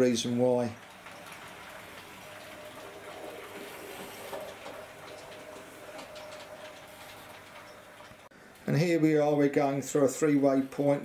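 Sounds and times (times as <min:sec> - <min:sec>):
wheels ticking over rail joints: 0:00.0 - 0:08.3
model train motor hum: 0:00.8 - 0:08.3.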